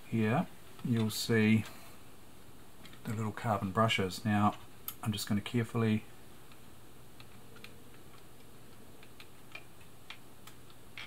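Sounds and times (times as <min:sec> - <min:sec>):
steady low hum: 0:00.0 - 0:11.0
small clicks of parts handled: 0:02.8 - 0:03.2.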